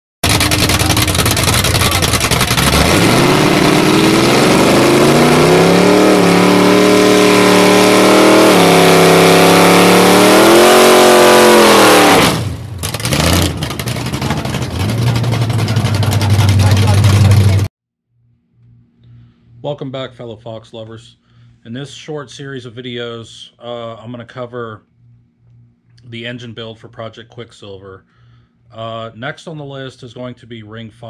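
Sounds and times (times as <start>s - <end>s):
car engine revving: 0.2s - 17.7s
low steady engine note: 14.0s - 17.7s.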